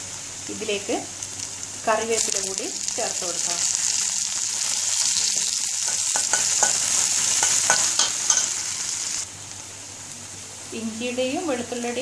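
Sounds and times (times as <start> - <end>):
food sizzling in oil: 0.0 - 12.0
spoon clicking and scraping pan: 5.8 - 8.6.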